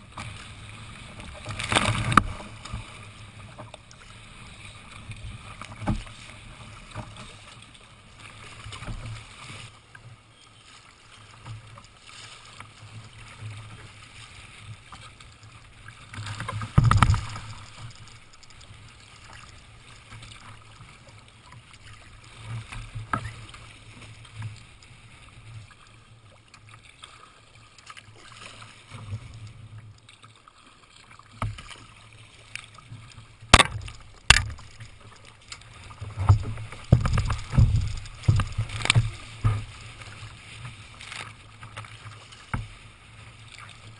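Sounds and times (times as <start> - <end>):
water splashing against kayak hull: 0.0 - 43.9
sharp knocks: 33.5 - 34.7.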